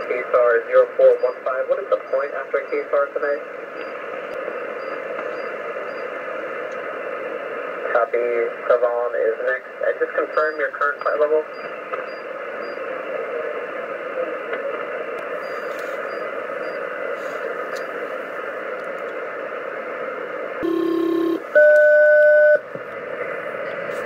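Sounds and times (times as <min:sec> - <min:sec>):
radio static hiss: 0:00.0 - 0:21.8, 0:22.5 - 0:24.0
two-note radio tones: 0:20.6 - 0:22.6.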